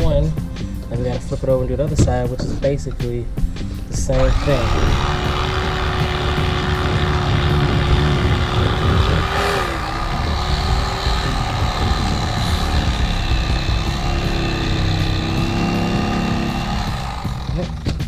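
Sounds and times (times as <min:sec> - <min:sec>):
electric knife humming: 0:04.1 - 0:18.0.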